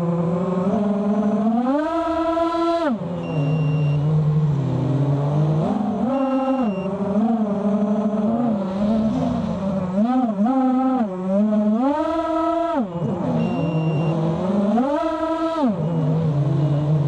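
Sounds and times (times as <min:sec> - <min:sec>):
drone motors whining: 0:00.0 - 0:17.0.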